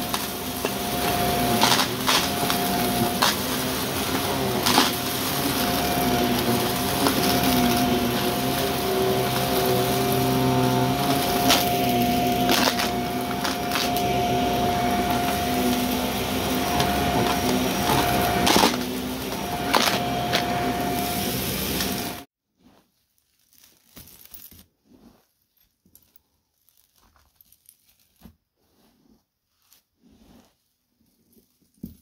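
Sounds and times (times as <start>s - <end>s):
debris crackling in vacuum: 0.0s - 22.3s
vacuum cleaner running: 0.0s - 22.3s.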